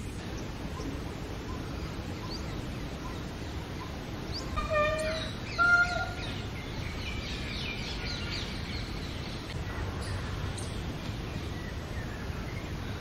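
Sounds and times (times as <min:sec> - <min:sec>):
small birds twittering: 0:00.0 - 0:13.0
steady background noise: 0:00.0 - 0:13.0
peafowl call: 0:03.8 - 0:06.5.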